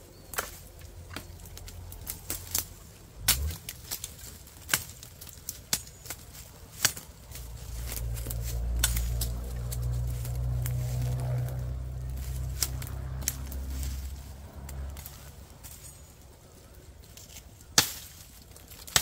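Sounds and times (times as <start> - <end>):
twigs snapping: 0.3 - 19.0
low rumble: 6.6 - 17.1.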